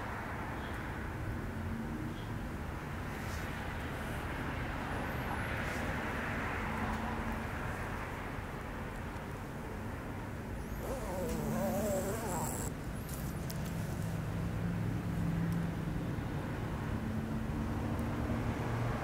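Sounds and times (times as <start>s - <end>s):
distant road traffic rumble: 10.4s - 14.0s.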